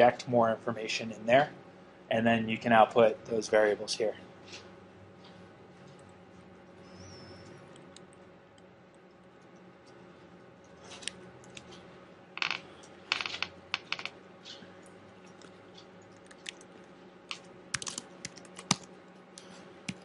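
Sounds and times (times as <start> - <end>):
faint steady hum: 0.0 - 20.0
laptop keyboard clicks: 17.3 - 18.9.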